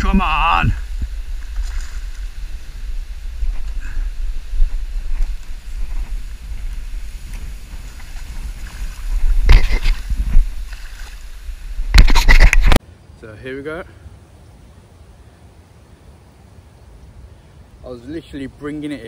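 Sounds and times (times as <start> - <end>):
wind buffeting microphone: 0.0 - 12.8.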